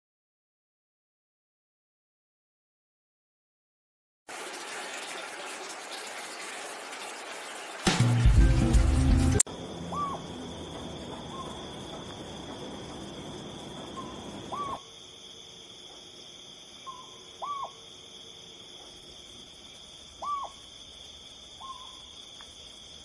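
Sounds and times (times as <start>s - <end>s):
owl hooting: 9.9s - 10.3s, 13.9s - 14.9s, 16.8s - 17.9s, 20.2s - 20.6s, 21.6s - 22.1s.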